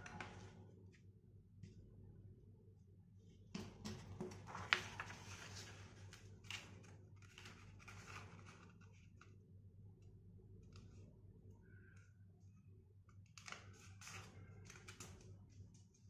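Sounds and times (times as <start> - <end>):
paper rustling and crackling: 4.2 - 9.4.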